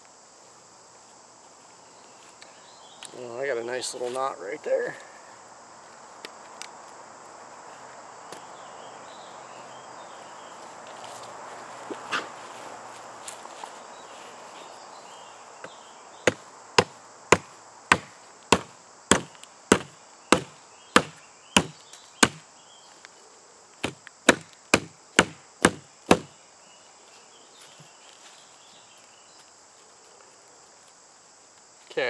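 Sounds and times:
hatchet chopping wood: 0:16.3 - 0:22.4, 0:23.8 - 0:26.3.

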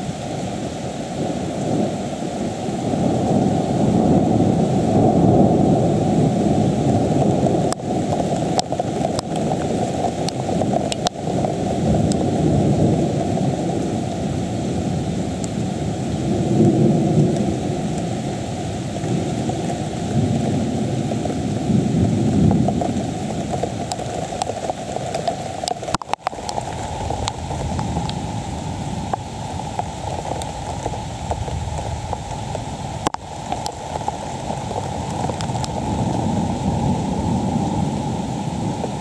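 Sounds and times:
heavy rain hissing: 0:00.0 - 0:39.0
low rumble of thunder: 0:01.2 - 0:09.7, 0:15.9 - 0:18.2, 0:19.0 - 0:23.7, 0:30.0 - 0:39.0.

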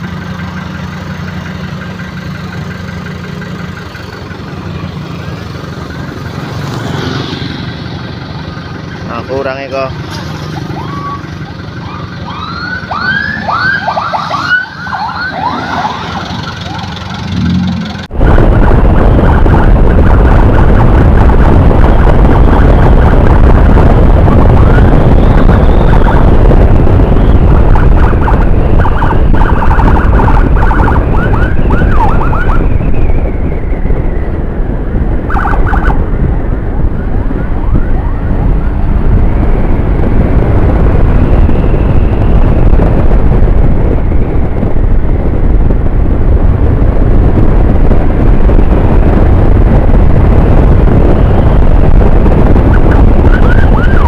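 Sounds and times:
motorcycle road noise: 0:00.0 - 0:54.0
emergency siren yelping: 0:10.4 - 0:17.5, 0:18.4 - 0:39.2, 0:50.6 - 0:54.0
wind rush on helmet: 0:12.6 - 0:54.0.

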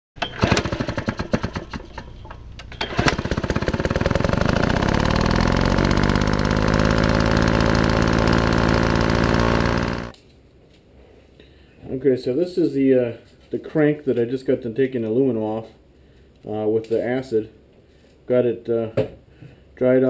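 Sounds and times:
rapid pulsing machine engine: 0:02.9 - 0:10.1.

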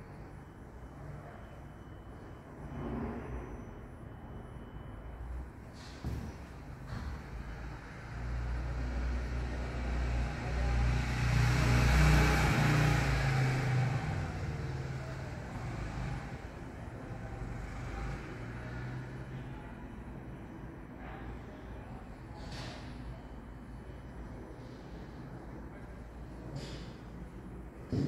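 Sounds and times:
vehicle passing by: 0:07.2 - 0:19.3.

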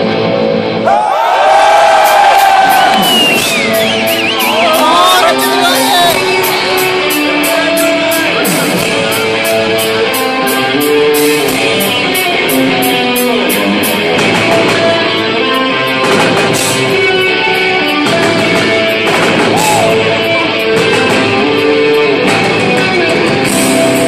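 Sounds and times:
lead electric guitar melody: 0:00.0 - 0:00.9, 0:02.9 - 0:24.0
rock band playing: 0:00.0 - 0:24.0.

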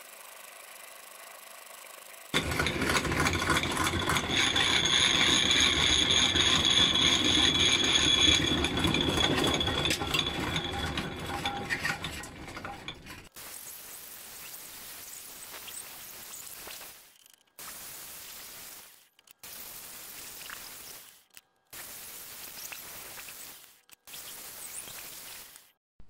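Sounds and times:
drill press boring into steel: 0:02.3 - 0:13.3.

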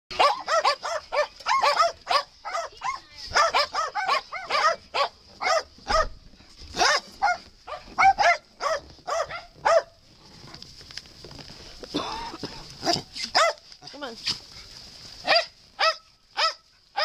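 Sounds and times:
small dogs barking: 0:00.1 - 0:10.0, 0:12.8 - 0:13.6, 0:15.2 - 0:17.0.

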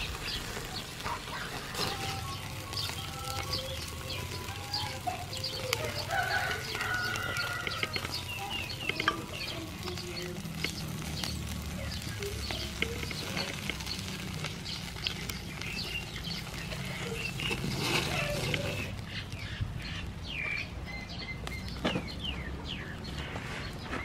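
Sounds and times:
chickens clucking: 0:00.0 - 0:24.0
food crackling on charcoal grill: 0:00.0 - 0:24.0
small birds chirping: 0:00.0 - 0:24.0.

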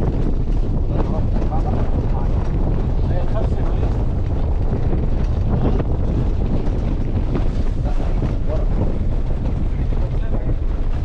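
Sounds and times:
car driving over rough ground: 0:00.0 - 0:11.0
wind buffeting microphone: 0:00.0 - 0:11.0.

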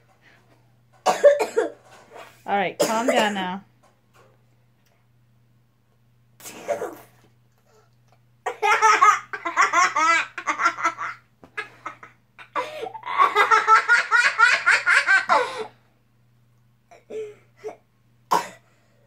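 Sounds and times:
young boy laughing: 0:08.5 - 0:15.7.

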